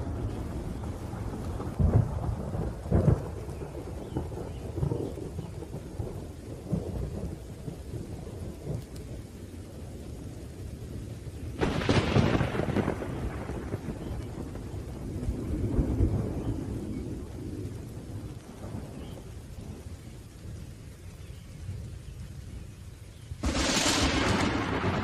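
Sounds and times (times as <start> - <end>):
sharp thunderclap: 0.0 - 7.4, 11.6 - 17.0, 23.4 - 25.0
low rumble of thunder: 0.0 - 25.0
steady rain: 0.0 - 25.0.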